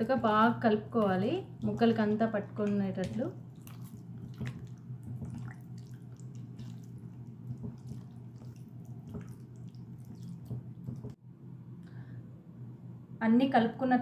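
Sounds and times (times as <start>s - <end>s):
hand squishing wet marinade: 0.0s - 11.2s
low steady hum: 0.0s - 14.0s.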